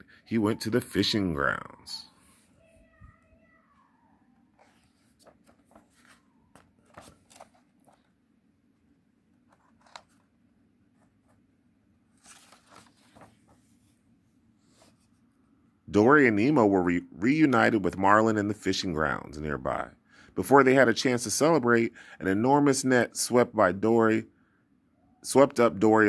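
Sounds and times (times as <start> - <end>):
paper page rustling: 4.6 - 8.2, 9.5 - 10.3, 12.1 - 14.0.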